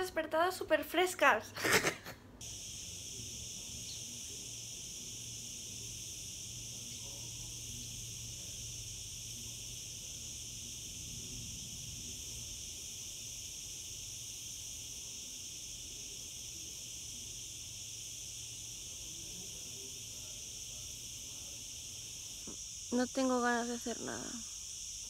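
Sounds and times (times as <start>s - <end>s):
faint low hum: 2.1s - 24.6s
cicada chorus drone: 2.4s - 25.0s.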